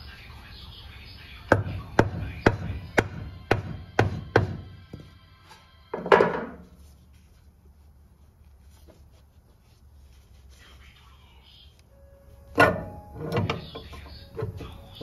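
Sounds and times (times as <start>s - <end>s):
hammer striking wooden block: 1.5s - 4.7s.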